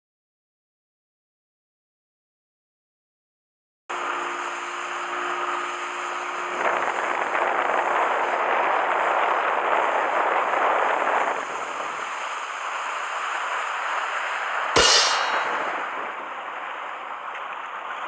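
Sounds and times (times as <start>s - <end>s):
boat engine drone: 3.9s - 18.0s
rushing wake spray and wind: 3.9s - 18.0s.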